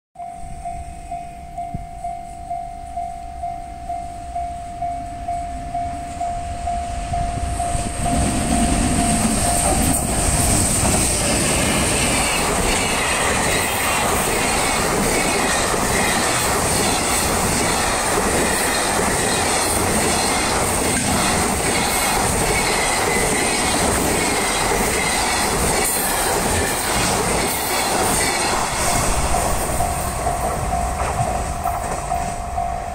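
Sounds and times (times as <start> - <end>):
level crossing warning bell: 0.2 - 10.7, 28.2 - 32.9
train wheel clatter and rumble: 7.2 - 32.9.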